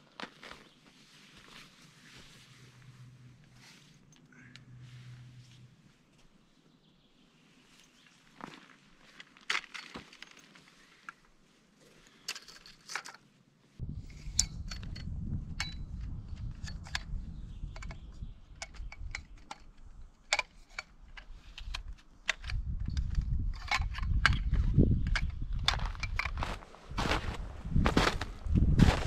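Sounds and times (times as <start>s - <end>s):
low rumble: 2.4s - 5.9s, 13.8s - 19.0s
metal tent poles clinking: 12.2s - 13.2s.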